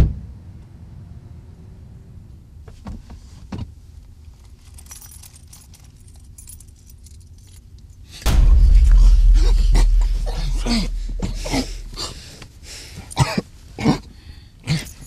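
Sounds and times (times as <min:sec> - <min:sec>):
sharp knocks: 0:08.3 - 0:12.1
deep low boom: 0:08.3 - 0:12.3
man coughing and choking: 0:13.2 - 0:14.0.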